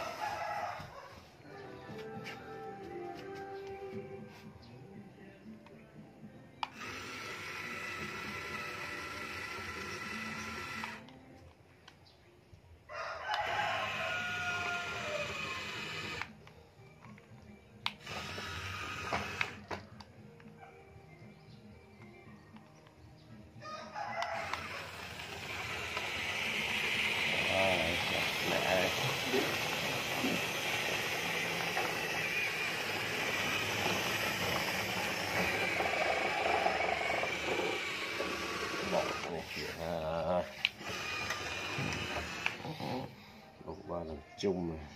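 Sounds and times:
rooster crowing: 0.0s - 1.8s, 12.9s - 15.9s, 23.6s - 25.2s
toy trucks rolling on wooden floor: 6.7s - 11.0s, 18.0s - 19.7s, 24.2s - 43.0s.

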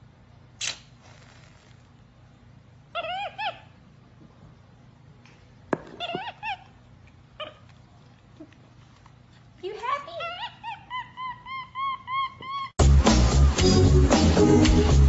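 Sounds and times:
sharp click: 0.6s - 0.9s
brief hiss: 0.6s - 1.9s
monkey chirping: 3.0s - 3.8s, 5.9s - 6.8s, 10.2s - 12.7s.

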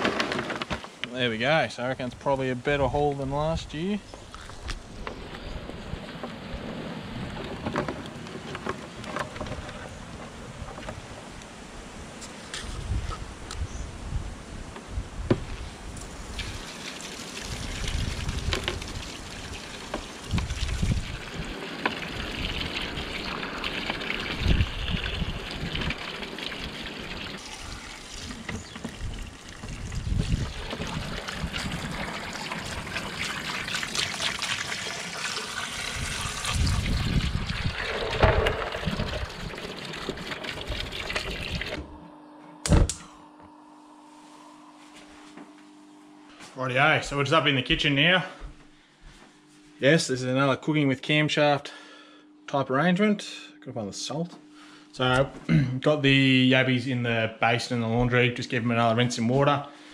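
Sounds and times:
hose water splashing into tub: 16.1s - 41.8s
steady hum: 35.6s - 59.9s.

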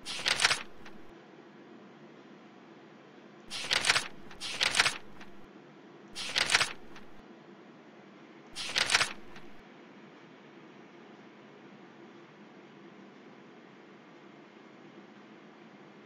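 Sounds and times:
mouse scroll wheel clicks: 0.0s - 1.1s, 3.5s - 5.4s, 6.2s - 7.2s, 8.6s - 9.6s.

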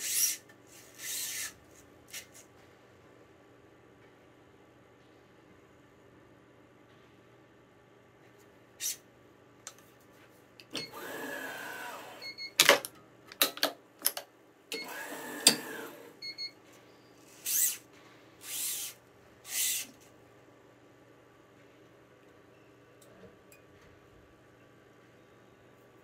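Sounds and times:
stringing machine motor whirring: 10.8s - 12.2s, 14.8s - 16.2s, 18.4s - 20.0s.

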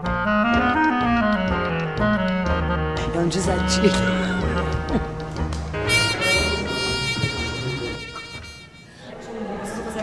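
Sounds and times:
long high note with vibrato: 5.8s - 9.0s.

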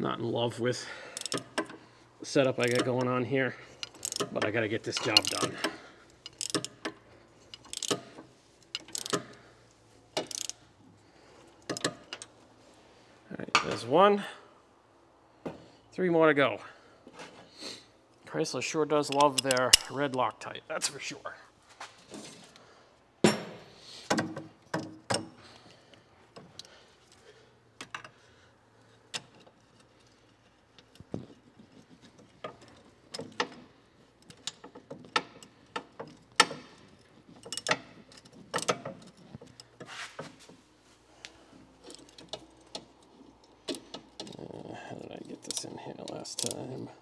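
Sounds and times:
metal tools clinking on steel: 1.0s - 9.5s, 10.1s - 10.6s, 19.0s - 20.2s, 29.0s - 40.5s, 41.4s - 47.0s
hand ratchet clicking: 1.2s - 1.8s, 2.6s - 3.0s, 3.7s - 9.4s, 10.2s - 10.6s.

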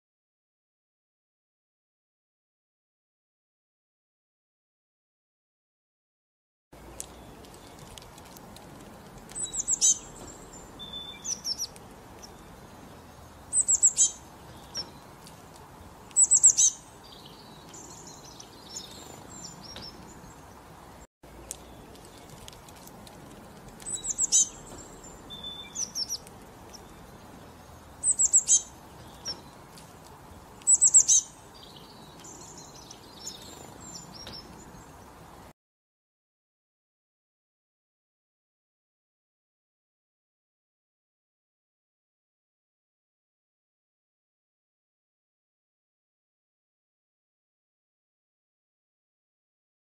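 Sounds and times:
small songbird chirping: 6.8s - 35.5s.

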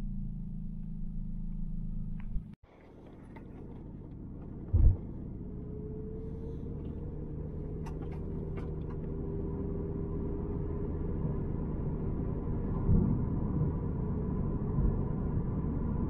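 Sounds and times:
car engine and road rumble: 0.0s - 16.0s
loud low thump: 4.7s - 5.1s.

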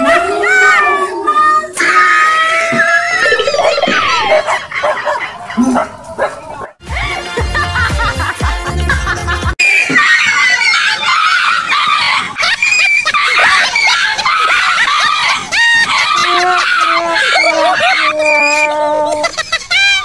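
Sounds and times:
music with heavy bass beat: 6.8s - 9.6s.

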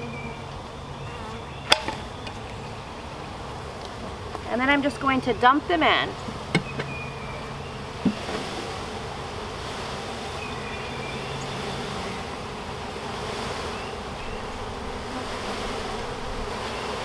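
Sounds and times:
honeybees buzzing: 0.0s - 17.0s.

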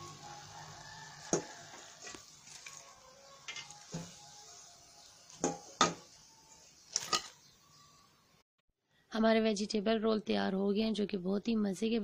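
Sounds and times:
food sizzling in frying oil: 0.0s - 7.2s.

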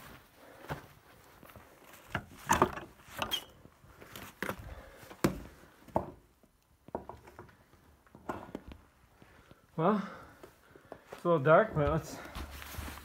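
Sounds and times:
door squeak: 3.2s - 3.6s
footsteps on plank floor: 10.4s - 13.0s.

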